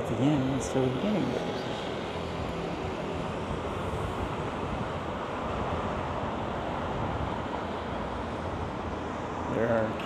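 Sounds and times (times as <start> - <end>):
city street traffic: 0.0 - 10.0.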